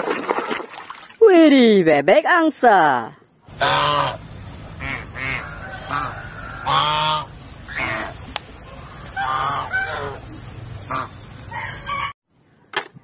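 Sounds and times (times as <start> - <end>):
goose honking: 3.5 - 12.1.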